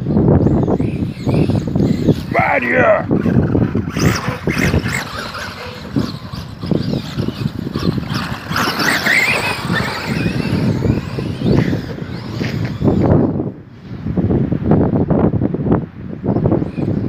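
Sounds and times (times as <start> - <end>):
electric motor whine: 0.3 - 13.5.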